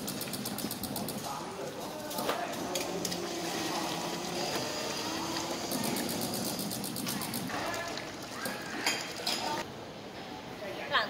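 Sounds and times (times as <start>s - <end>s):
water streaming into plastic tray: 7.2s - 9.6s.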